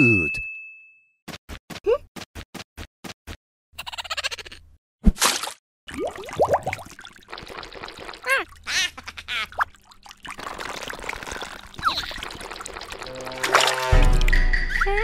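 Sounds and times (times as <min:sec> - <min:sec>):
liquid pouring and trickling: 0:05.9 - 0:14.4
squeaky chirps: 0:14.3 - 0:15.0.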